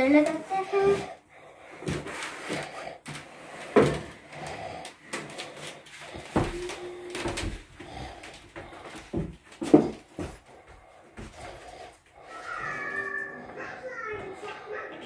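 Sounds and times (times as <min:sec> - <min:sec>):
wooden chair knocking and bumping: 0:06.2 - 0:07.7, 0:09.1 - 0:10.4.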